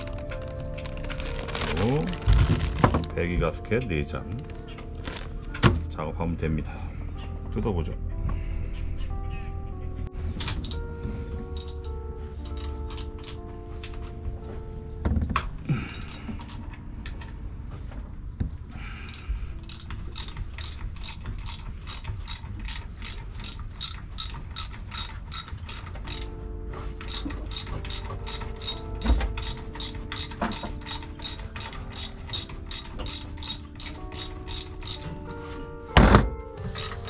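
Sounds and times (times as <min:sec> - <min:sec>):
ratchet wrench clicking: 0:19.1 - 0:26.3, 0:27.1 - 0:28.8, 0:29.4 - 0:35.0, 0:36.8 - 0:37.0.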